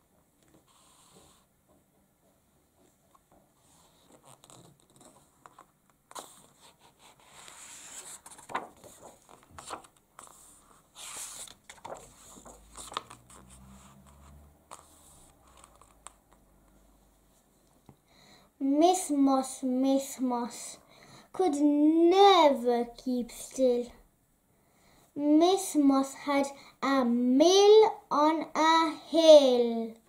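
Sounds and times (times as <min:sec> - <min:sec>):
book pages rustling: 0:03.1 - 0:16.5.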